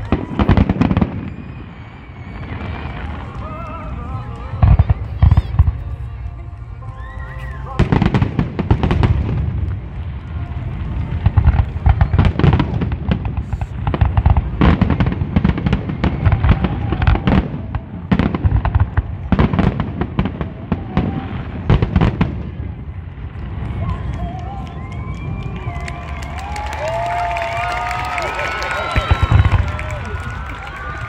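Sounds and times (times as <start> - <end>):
fireworks booming and crackling: 0.0 - 31.0.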